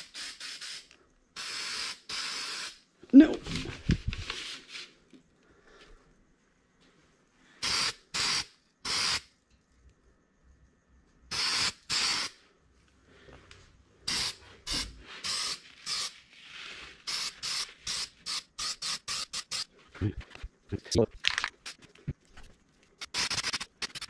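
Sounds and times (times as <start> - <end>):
spray paint can hissing: 0.0 - 2.8, 7.6 - 9.3, 11.3 - 12.4, 14.1 - 16.2, 17.0 - 19.7, 23.0 - 24.0.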